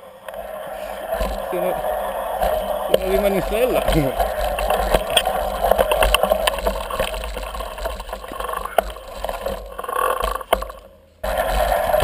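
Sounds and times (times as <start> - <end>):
bikes pushed on dirt trail: 0.0 - 12.0.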